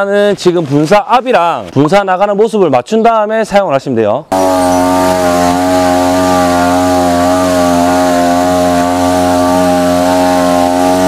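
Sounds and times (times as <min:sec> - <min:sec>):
sprayer engine running: 0:04.3 - 0:11.0.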